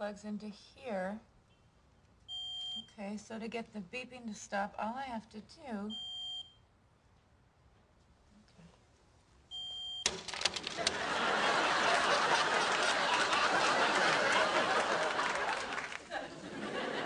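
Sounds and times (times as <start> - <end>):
smoke detector beeps: 2.3 - 2.9, 5.9 - 6.6, 9.5 - 10.1
audience laughing: 10.8 - 17.0.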